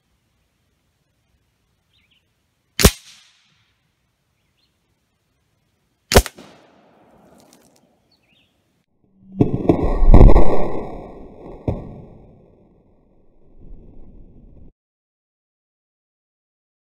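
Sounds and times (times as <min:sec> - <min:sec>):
air rifle shots: 0:02.8 - 0:03.5, 0:06.1 - 0:07.4.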